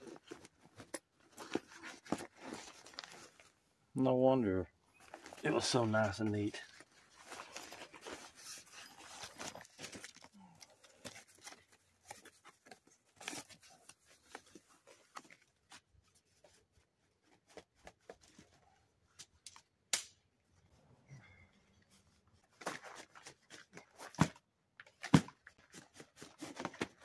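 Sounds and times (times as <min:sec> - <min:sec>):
tent packaging rustling: 0:00.0 - 0:03.6, 0:04.9 - 0:18.8, 0:22.4 - 0:24.4, 0:25.0 - 0:27.0
sharp snap: 0:19.9 - 0:20.2.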